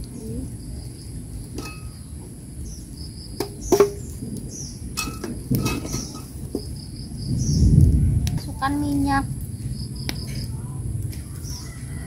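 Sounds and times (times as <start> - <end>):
birds chirping: 0.0 - 12.0
insects droning: 0.0 - 12.0
metal wok and spatula knocking: 1.6 - 2.1, 3.4 - 4.0.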